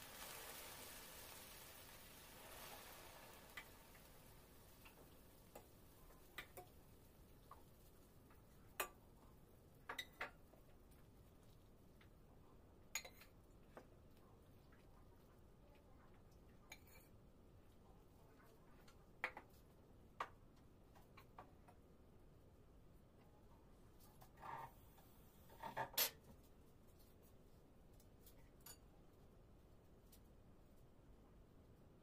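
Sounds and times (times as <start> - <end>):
faint hiss: 0.0 - 8.2.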